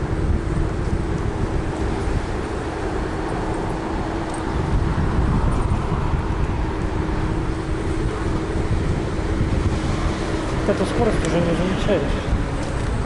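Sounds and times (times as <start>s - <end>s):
passing traffic: 0.0s - 13.0s
steady low hum: 0.0s - 13.0s
wind rumble on microphone: 0.0s - 13.0s.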